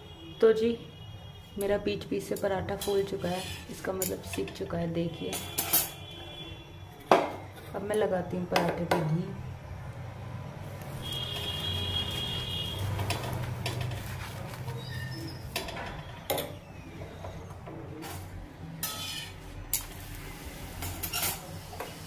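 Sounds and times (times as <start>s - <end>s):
spoon scraping a griddle: 2.7s - 4.6s, 12.8s - 16.6s, 17.2s - 22.0s.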